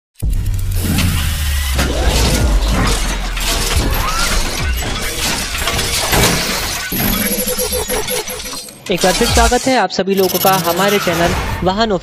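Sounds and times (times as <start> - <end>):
deep low rumble: 0.2 - 5.8
dense crackling: 0.2 - 7.0
shatter-like hits: 0.8 - 7.4
pitched tone: 1.8 - 5.2.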